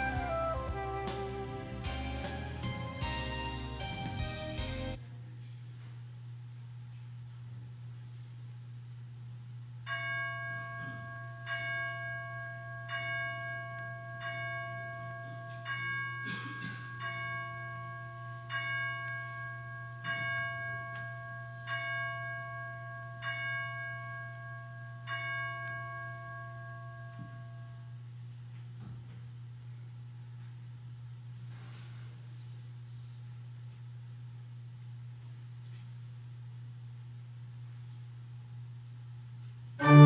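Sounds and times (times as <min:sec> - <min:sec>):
low steady hum: 0:00.0 - 0:40.0
bell tolling: 0:39.8 - 0:40.0.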